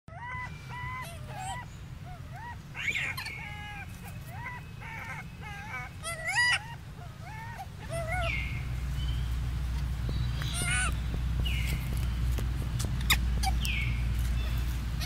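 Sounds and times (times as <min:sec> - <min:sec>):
shrill monkey squeal: 0:00.1 - 0:08.4, 0:10.4 - 0:11.0
monkey high-pitched cry: 0:00.1 - 0:08.6, 0:10.4 - 0:11.0, 0:13.0 - 0:13.9
infant monkeys cooing: 0:00.1 - 0:08.8, 0:10.4 - 0:11.2, 0:12.8 - 0:15.0.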